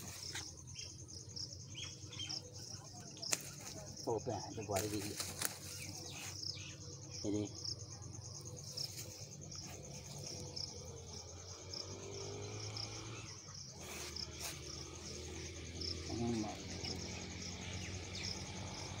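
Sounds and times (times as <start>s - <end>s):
insect chirping: 0.0s - 19.0s
leaves rustling: 3.2s - 4.0s, 4.6s - 6.6s, 13.8s - 18.7s.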